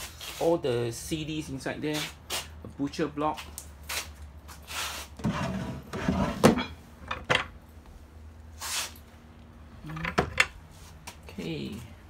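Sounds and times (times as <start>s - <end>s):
wood scraping: 4.8s - 7.5s.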